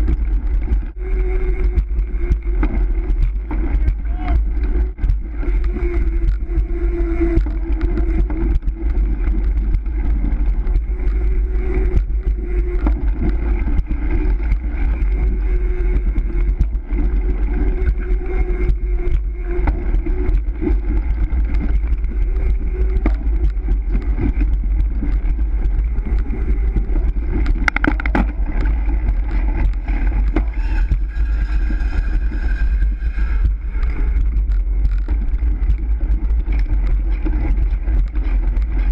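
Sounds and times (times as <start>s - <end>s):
bicycle tyres on concrete: 0.0s - 38.9s
wind buffeting microphone: 0.0s - 38.9s.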